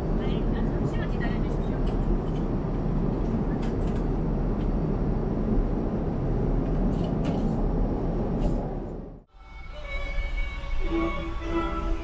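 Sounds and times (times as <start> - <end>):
airliner cabin rumble: 0.0 - 9.3.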